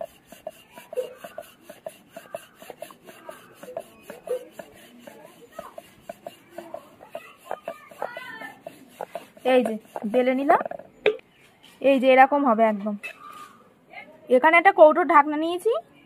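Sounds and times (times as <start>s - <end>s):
wavering voice-like cries: 0.0s - 10.8s.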